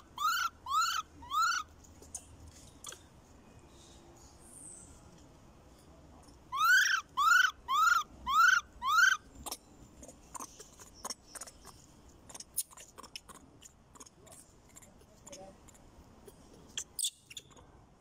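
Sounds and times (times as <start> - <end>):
macaque high-pitched calls: 0.0 - 1.7, 6.5 - 9.6.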